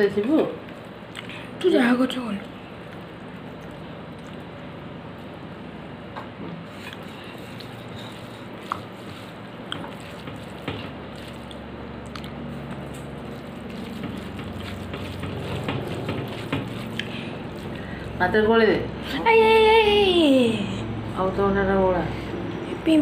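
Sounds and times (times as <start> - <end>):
wet squishy food mixing: 0.0 - 5.4, 6.6 - 18.7.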